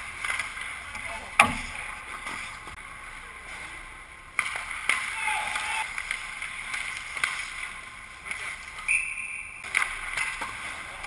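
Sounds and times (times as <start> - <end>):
small knocks: 1.4 - 1.8
skate blades scraping ice: 3.5 - 9.0.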